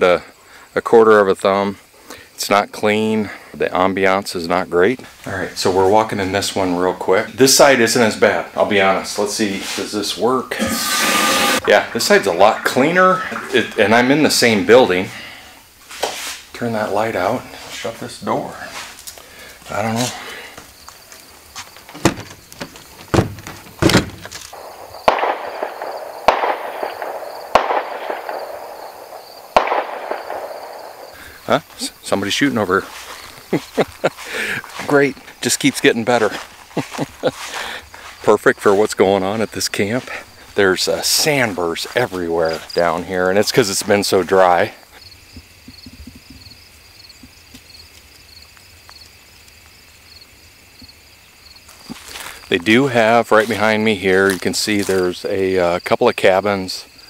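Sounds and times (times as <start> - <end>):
high insect drone: 0.0 - 57.0
insects chirping: 0.0 - 57.0
distant gunshots with echo: 24.6 - 31.2.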